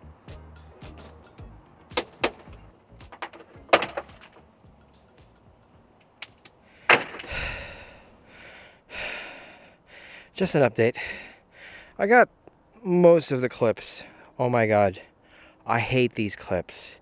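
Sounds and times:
plastic clips snapping: 2.0 - 4.4, 6.0 - 7.3.

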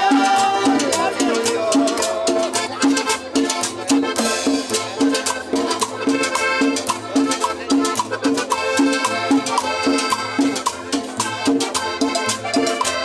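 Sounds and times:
salsa music: 0.0 - 13.0.

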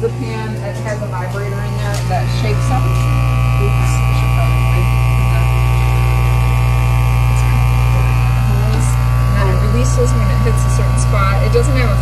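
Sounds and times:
loud electric machine hum: 0.0 - 12.0.

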